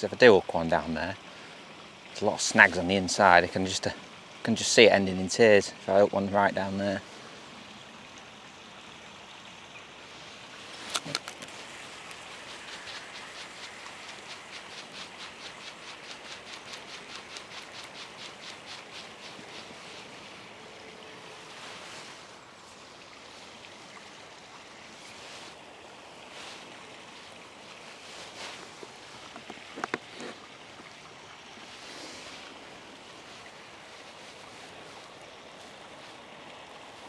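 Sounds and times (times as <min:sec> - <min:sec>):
outdoor background hiss: 0:00.0 - 0:37.0
sharp reel clicks: 0:10.9 - 0:19.6
fishing reel ticking: 0:12.1 - 0:19.7.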